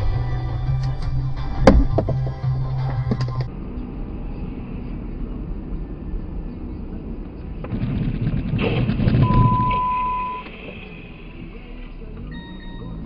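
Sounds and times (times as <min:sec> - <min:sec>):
car interior rumble: 0:00.0 - 0:13.0
knocks: 0:01.6 - 0:02.4
electronic beep: 0:09.2 - 0:11.4, 0:12.2 - 0:13.0.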